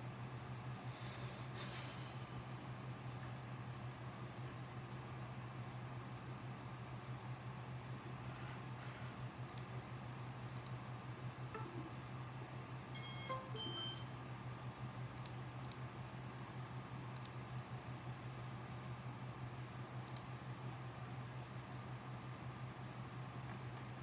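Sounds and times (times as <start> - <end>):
steady low hum: 0.0 - 14.9
faint mouse clicks: 9.4 - 9.7, 10.5 - 10.8, 15.2 - 15.8, 17.1 - 17.4, 20.0 - 20.3
electronic computer chimes: 13.0 - 14.2.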